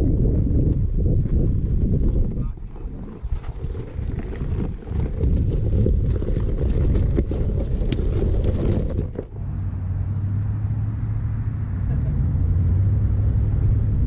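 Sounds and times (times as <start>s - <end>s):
wind buffeting microphone: 0.0s - 9.6s
tyres crunching over gravel: 1.2s - 9.4s.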